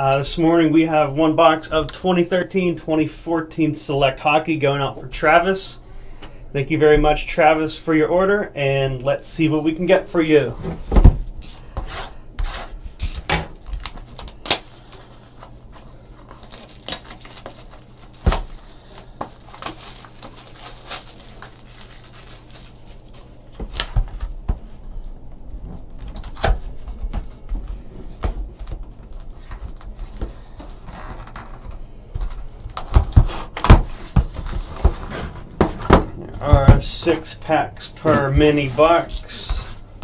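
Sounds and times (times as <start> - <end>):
plastic wrap crinkling: 13.0 - 24.0
rustling and knocks of boxes: 25.8 - 37.1.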